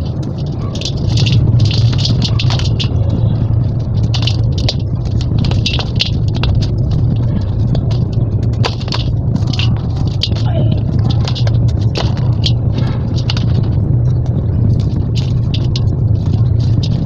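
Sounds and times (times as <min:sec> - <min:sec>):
grit ticking onto steel bowl: 0:00.0 - 0:17.0
steady low hum: 0:00.0 - 0:17.0.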